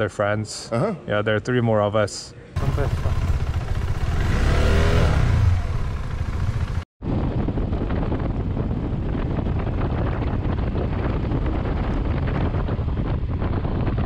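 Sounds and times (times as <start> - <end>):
wind rush over microphone: 3.2 - 14.0.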